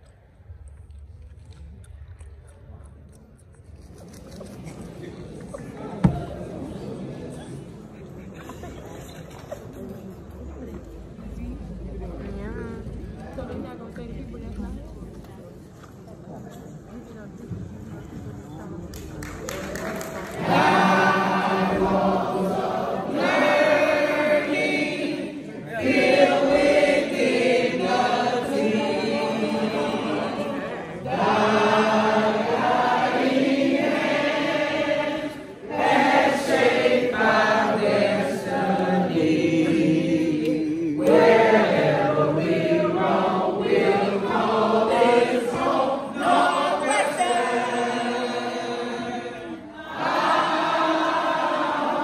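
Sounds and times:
crowd singing: 20.3 - 52.0.

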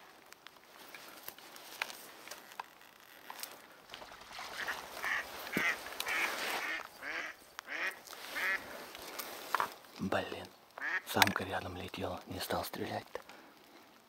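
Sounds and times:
duck quacking: 4.6 - 8.6, 10.8 - 11.1.

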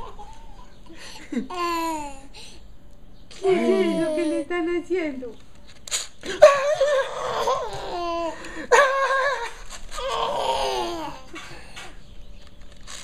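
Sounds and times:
toddler laughing: 0.0 - 2.2, 3.4 - 4.5, 6.4 - 11.7.

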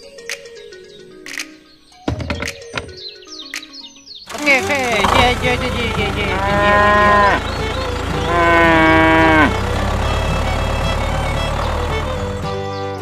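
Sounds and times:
cow mooing: 4.4 - 10.2.

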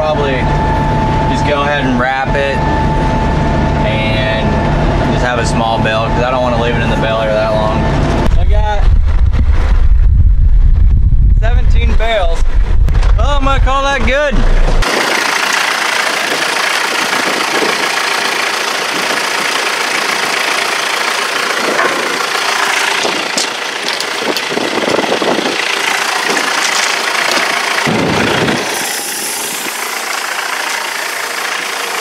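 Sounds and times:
loud bumps: 8.2 - 15.1, 21.6 - 29.8
motor running: 14.8 - 32.0.

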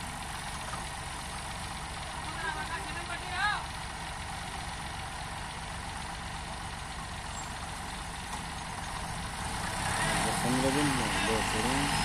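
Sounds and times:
diesel engines running: 0.0 - 12.0.

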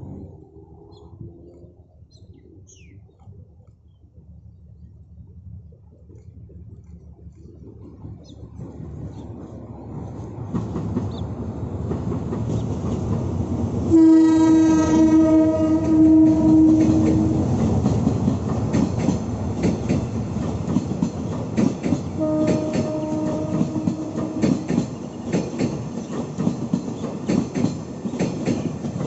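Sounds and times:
train wheels clicking over rail joints: 7.4 - 29.0
locomotive rumble passing: 8.0 - 29.0
locomotive air horn blast: 13.9 - 17.4, 22.2 - 24.6.

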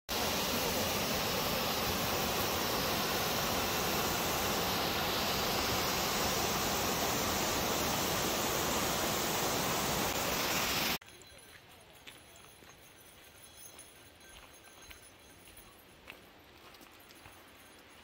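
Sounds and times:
waterfall rushing over rocks: 0.1 - 11.0.

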